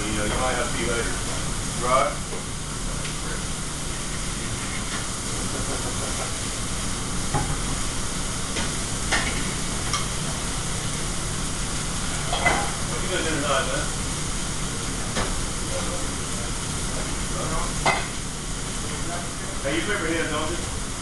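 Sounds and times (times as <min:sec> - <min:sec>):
food frying hiss: 0:00.0 - 0:21.0
ventilation hood hum: 0:00.0 - 0:21.0
pans and utensils clinking: 0:12.2 - 0:12.8.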